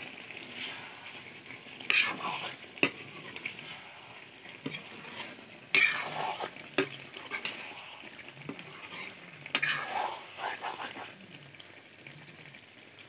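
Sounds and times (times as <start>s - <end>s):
curry sizzling in a pan: 0.0s - 13.0s
metal spatula scraping a pan: 1.8s - 11.1s.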